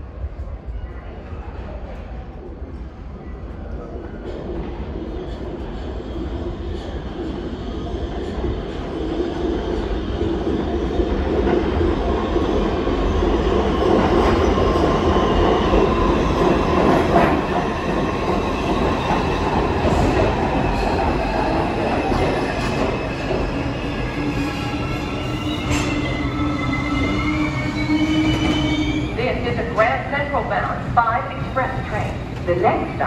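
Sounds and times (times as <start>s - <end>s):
subway train rumbling on rails: 0.0s - 33.0s
high wheel squeal: 24.3s - 29.1s.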